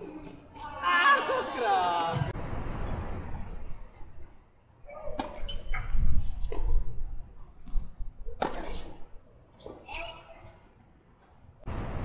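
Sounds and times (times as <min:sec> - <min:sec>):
tennis ball hits and bounces: 0:05.0 - 0:05.9, 0:07.6 - 0:09.0.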